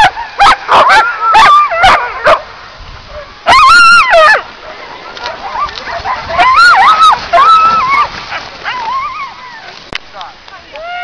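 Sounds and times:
dog yowling: 0:00.0 - 0:02.4, 0:03.4 - 0:04.4, 0:05.3 - 0:09.7
dogs barking and yelping: 0:00.0 - 0:09.8.

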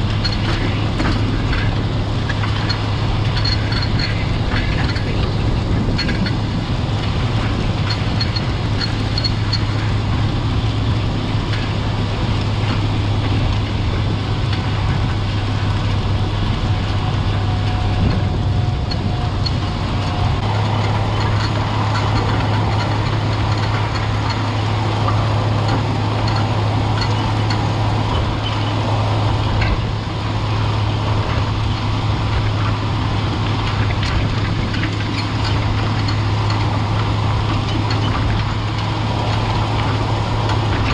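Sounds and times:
tractor diesel engine droning: 0:00.0 - 0:40.9.

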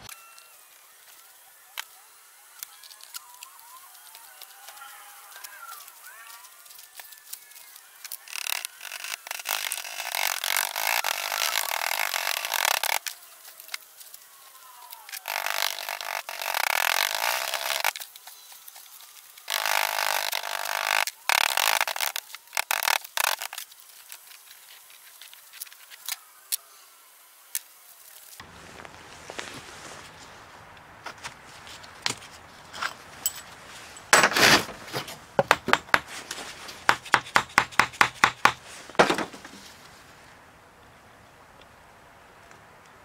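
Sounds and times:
sand scraping in wooden box: 0:08.2 - 0:13.9.

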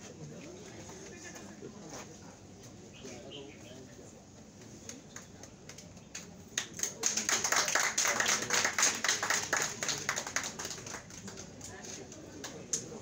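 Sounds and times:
audience applauding: 0:06.6 - 0:11.6.

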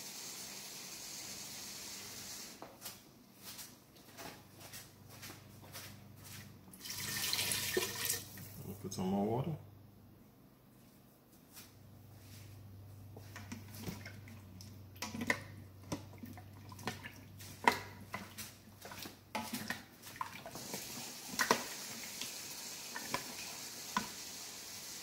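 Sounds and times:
steady hiss: 0:00.0 - 0:02.7, 0:20.6 - 0:25.0.

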